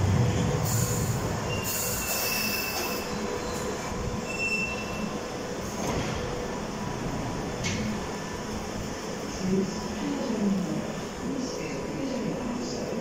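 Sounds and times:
train rumbling and clattering: 0.0 - 13.0
hiss: 0.6 - 3.0
high brake squeals: 1.5 - 5.1.

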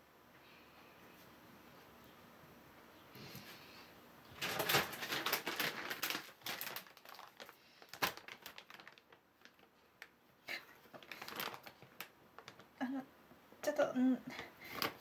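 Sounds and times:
plastic bag crinkling: 4.3 - 12.9, 14.6 - 15.0.

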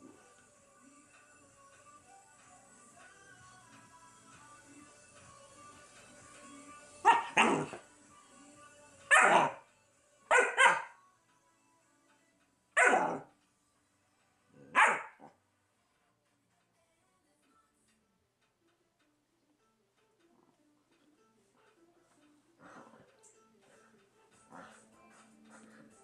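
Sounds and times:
faint background music: 0.0 - 26.0
puppy barking: 7.0 - 7.8, 9.1 - 9.6, 10.3 - 11.0, 12.8 - 13.3, 14.6 - 15.4.

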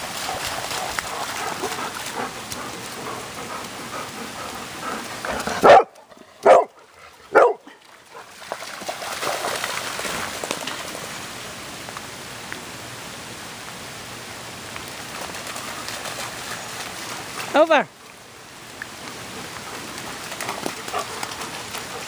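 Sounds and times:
steady rain: 0.0 - 22.0
dog barking: 5.6 - 7.7.

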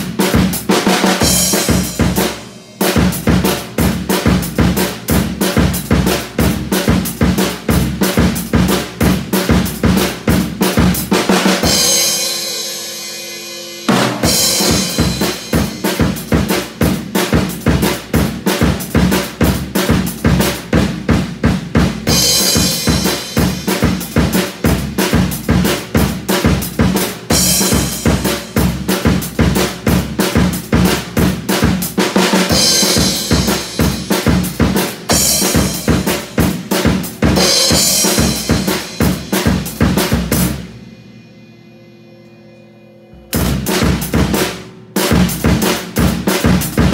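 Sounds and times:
acoustic drum kit groove: 0.0 - 40.9, 43.2 - 46.9
cymbal ringing: 11.6 - 16.3, 37.4 - 45.6.

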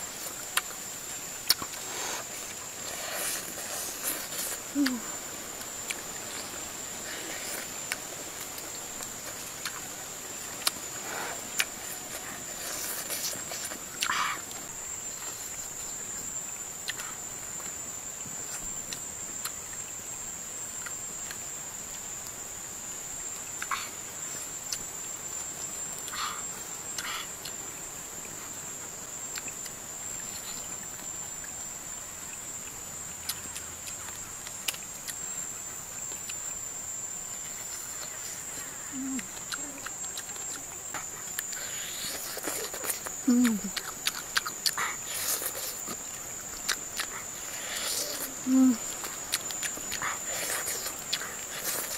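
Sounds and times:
insects droning: 0.0 - 51.9
person chewing and smacking: 1.4 - 5.0, 7.2 - 9.9, 10.5 - 10.9, 11.5 - 14.6, 39.2 - 51.9.

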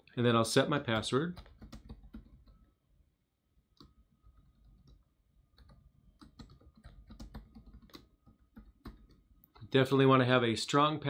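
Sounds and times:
laptop keyboard keystrokes: 1.3 - 2.7, 3.8 - 9.7.

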